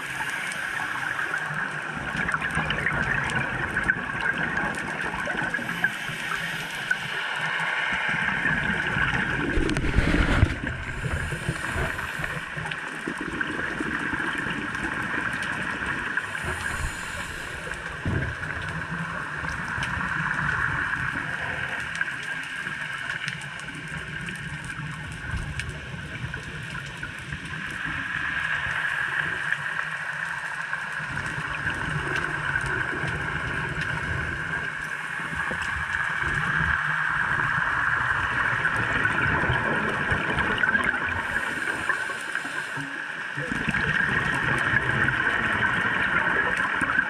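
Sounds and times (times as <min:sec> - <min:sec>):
underwater hiss: 0:00.0 - 0:02.3, 0:05.0 - 0:14.5, 0:15.4 - 0:22.0, 0:27.6 - 0:46.2
regulator exhaust bubbles gurgling: 0:00.8 - 0:07.0, 0:08.3 - 0:22.1, 0:31.0 - 0:42.4, 0:43.3 - 0:47.0.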